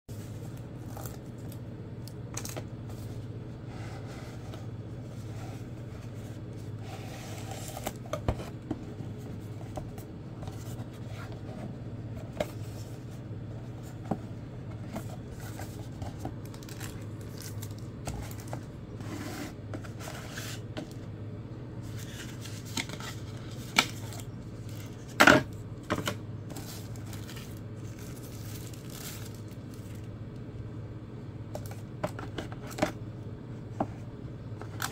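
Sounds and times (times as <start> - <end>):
steady low hum: 0.1 - 34.9
cardboard sliding and scraping: 3.0 - 16.3, 18.0 - 20.8.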